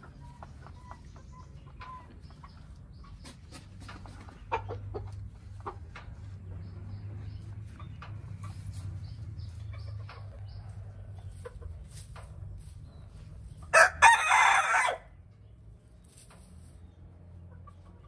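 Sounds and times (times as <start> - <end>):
hens clucking softly: 0.0 - 13.8, 15.3 - 18.0
scratching in straw: 8.2 - 9.7, 10.7 - 14.2, 15.8 - 16.8
rooster crowing: 13.7 - 15.1.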